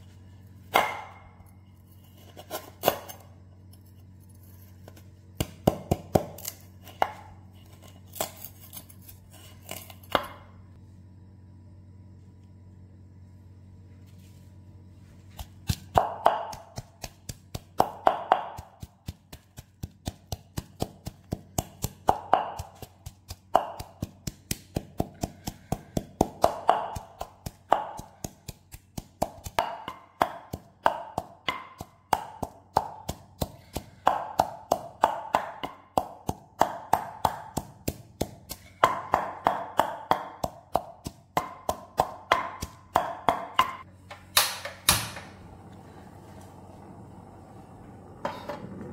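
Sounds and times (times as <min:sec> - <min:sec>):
wooden pestle pounding in mortar: 0:00.7 - 0:01.3, 0:05.4 - 0:07.3, 0:15.4 - 0:45.2.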